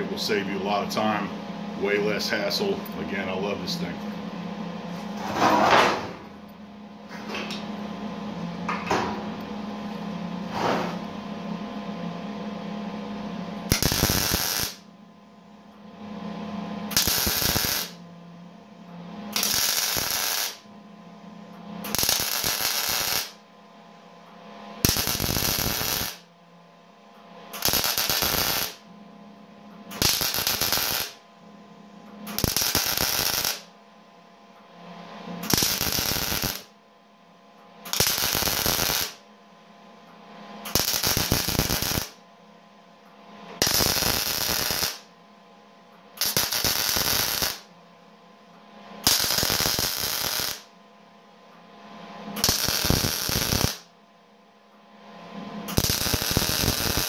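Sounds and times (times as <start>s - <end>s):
welder low hum: 0.0s - 34.1s, 34.8s - 36.8s, 37.8s - 45.2s, 46.2s - 47.9s, 48.8s - 50.8s, 51.7s - 53.9s, 54.9s - 57.0s
welding arc crackling: 13.7s - 14.8s, 16.9s - 18.0s, 19.4s - 20.7s, 21.8s - 23.4s, 24.8s - 26.2s, 27.6s - 28.8s, 30.0s - 31.2s, 32.4s - 33.7s, 35.4s - 36.7s, 37.9s - 39.2s, 40.7s - 42.2s, 43.6s - 45.1s, 46.2s - 47.7s, 49.0s - 50.7s, 52.4s - 53.9s, 55.7s - 57.0s.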